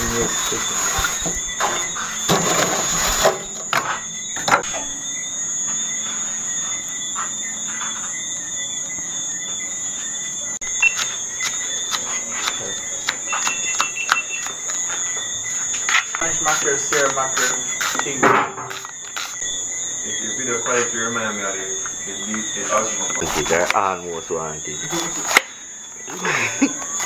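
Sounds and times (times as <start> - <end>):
high-pitched whine: 10.3 - 25.7
scattered clicks: 10.8 - 15.1.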